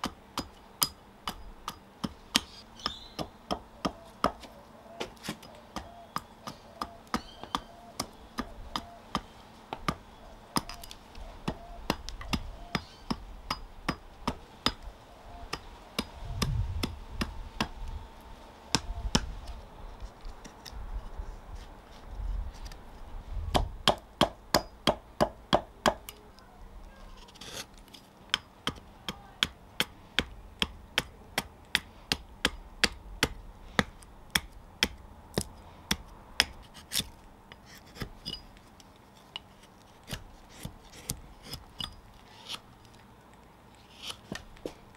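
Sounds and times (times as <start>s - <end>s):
hatchet chopping wood: 0.0s - 10.0s, 10.6s - 14.9s, 15.5s - 17.8s, 18.7s - 19.3s, 23.5s - 26.2s, 28.3s - 38.4s, 44.0s - 44.8s.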